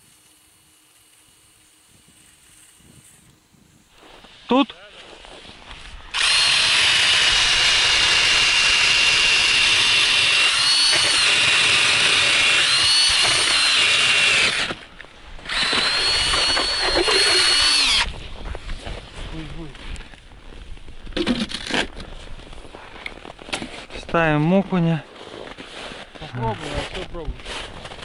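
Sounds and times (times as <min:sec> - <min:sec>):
drill boring through ice: 0:06.1 - 0:18.2.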